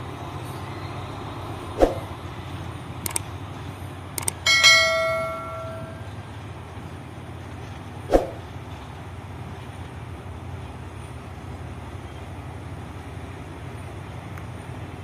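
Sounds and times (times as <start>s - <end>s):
diesel locomotive rumbling: 0.0s - 15.0s
bell-like chime: 4.5s - 6.1s.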